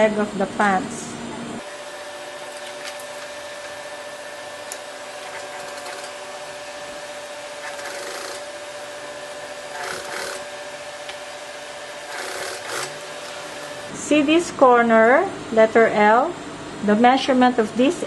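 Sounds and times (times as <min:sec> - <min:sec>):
sewing machine motor humming: 0:01.7 - 0:13.9
rasping stitching of heavy fabric: 0:05.2 - 0:06.2, 0:07.6 - 0:08.7, 0:09.7 - 0:10.5, 0:12.1 - 0:13.2.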